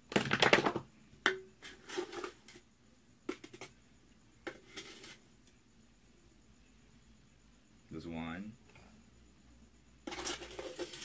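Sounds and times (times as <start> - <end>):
plastic cup clattering on metal pot: 0.1 - 2.4.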